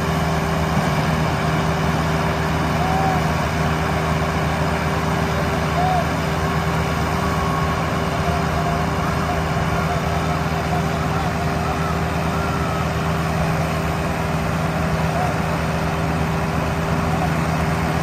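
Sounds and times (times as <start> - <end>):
tractor diesel engines running: 0.0 - 18.0
faint voices: 4.4 - 18.0.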